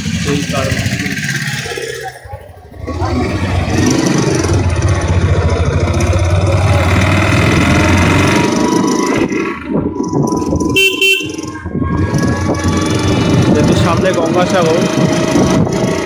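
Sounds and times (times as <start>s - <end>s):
motorcycle engine running: 0.0s - 16.0s
vehicle horn honk: 10.8s - 11.6s.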